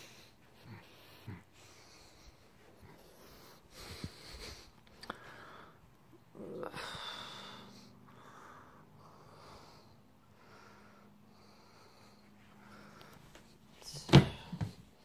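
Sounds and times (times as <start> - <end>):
snort-like breath: 0.0 - 4.8
close breathing: 0.0 - 15.0
faint steady hum: 0.0 - 15.0.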